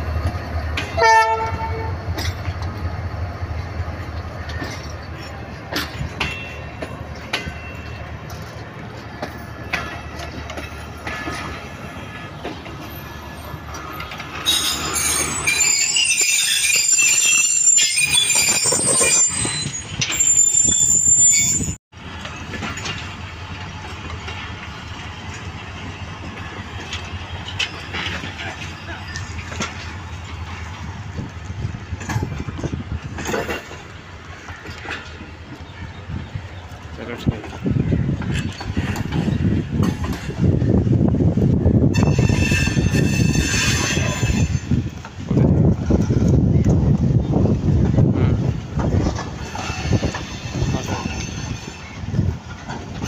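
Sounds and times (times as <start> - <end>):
train coaches rolling on rails: 0.0 - 53.0
high-pitched wheel squeal: 14.4 - 21.8, 42.0 - 44.8.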